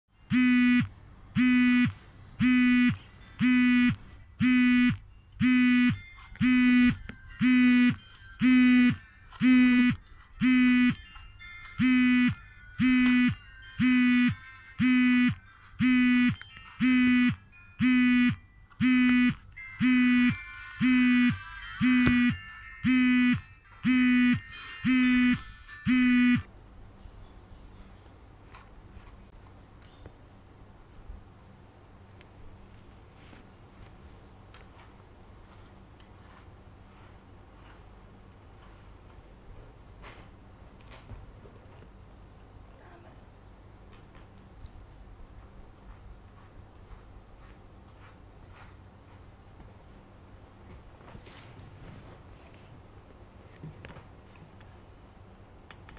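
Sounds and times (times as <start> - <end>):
electronic buzzer beeping: 0.3 - 11.0, 11.8 - 26.5.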